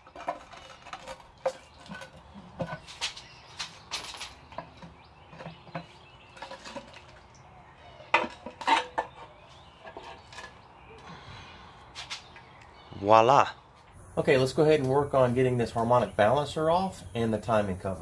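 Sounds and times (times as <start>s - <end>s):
pry bar clanking on metal: 8.1s - 10.6s.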